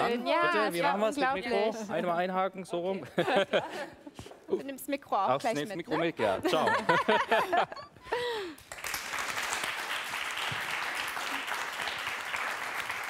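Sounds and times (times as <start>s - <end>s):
applause: 8.4s - 13.0s.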